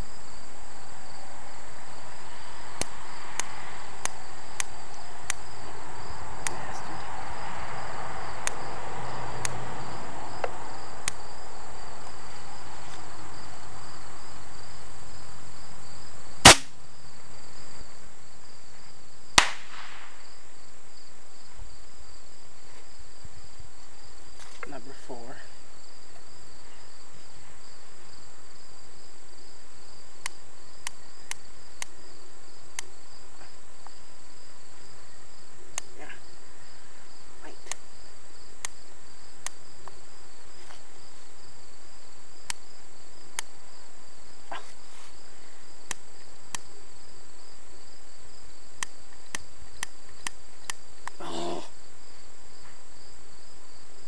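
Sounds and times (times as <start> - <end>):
crickets chirping: 0.0 - 54.0
sharp loud pops: 16.4 - 16.8, 19.4 - 20.2.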